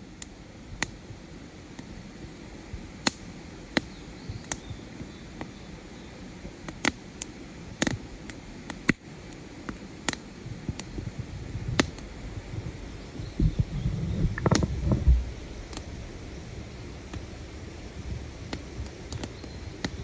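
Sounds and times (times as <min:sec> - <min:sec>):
campfire crackling and popping: 0:00.0 - 0:20.0.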